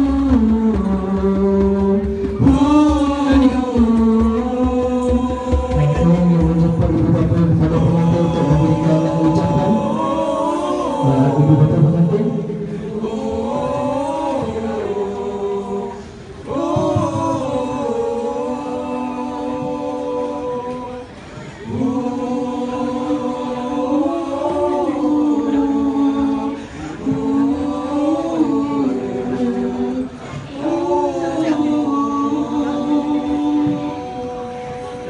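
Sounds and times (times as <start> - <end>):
group of voices chanting: 2.0 - 35.0.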